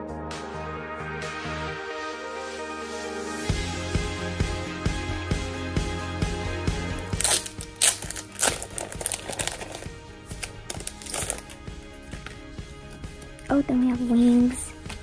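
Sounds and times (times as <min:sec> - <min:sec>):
background music with steady beat: 0:00.0 - 0:15.0
plastic sleeve crinkling: 0:07.1 - 0:12.3.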